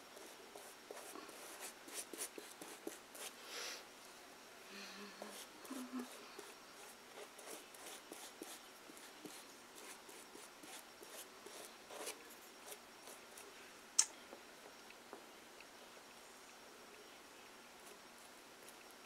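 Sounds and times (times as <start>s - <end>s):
paintbrush brushing on paper: 0.2s - 3.4s, 5.2s - 13.5s.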